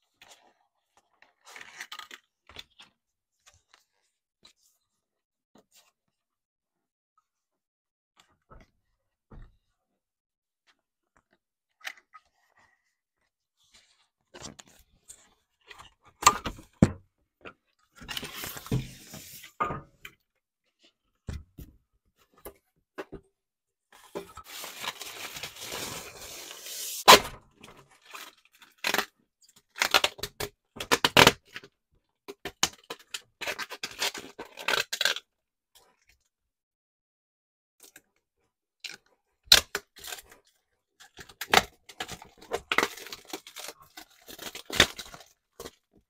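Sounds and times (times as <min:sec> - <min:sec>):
plastic film crinkling: 0:24.4 - 0:27.0
plastic film rustling: 0:24.4 - 0:27.1.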